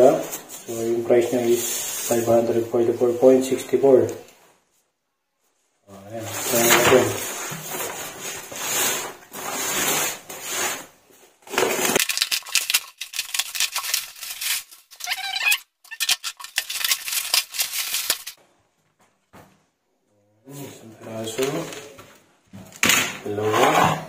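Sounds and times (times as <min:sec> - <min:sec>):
plastic film rustling: 0:06.2 - 0:18.4
bubble wrap crackling: 0:11.5 - 0:18.4.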